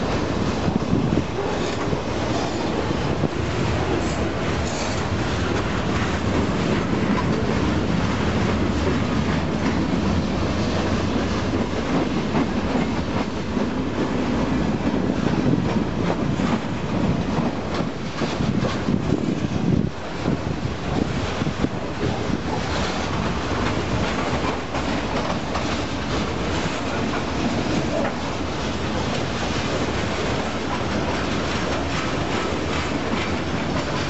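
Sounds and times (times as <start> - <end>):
clatter of train wheels: 0.0 - 34.0
train wheels rumbling on rails: 0.0 - 34.0.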